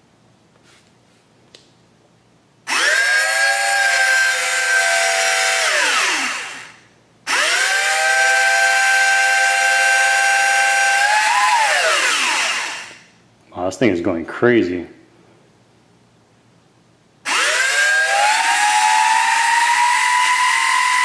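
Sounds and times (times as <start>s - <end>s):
small motors whining: 2.7s - 13.0s, 17.3s - 21.0s.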